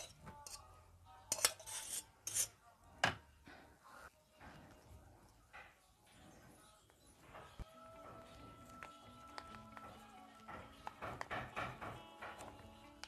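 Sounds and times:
metal bowl scraping and clinking: 0.0s - 0.7s, 1.3s - 2.6s.

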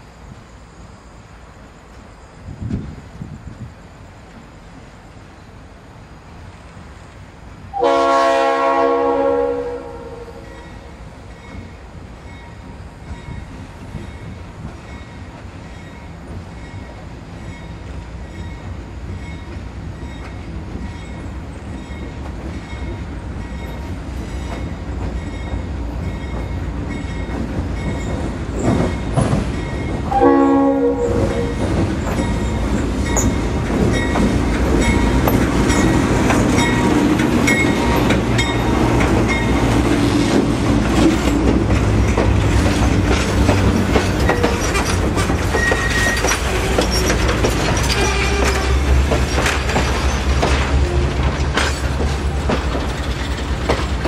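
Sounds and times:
train horn blast: 7.7s - 10.6s, 30.1s - 31.6s
diesel locomotive rumble: 16.2s - 54.0s
wheels clicking over rail joints: 19.1s - 30.3s, 31.1s - 54.0s.

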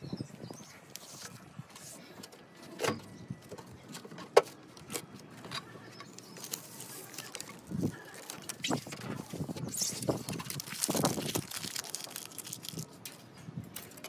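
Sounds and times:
roofing tape crackling and rustling: 6.0s - 14.0s
paper backing peeling: 6.1s - 13.0s.

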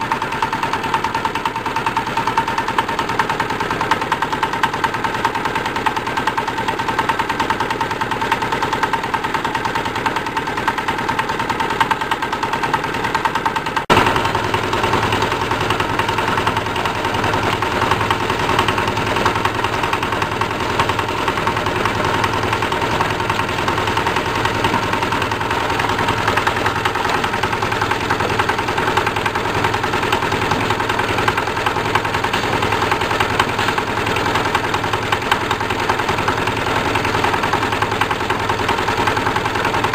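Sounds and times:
washing machine mechanical din: 0.0s - 39.9s.

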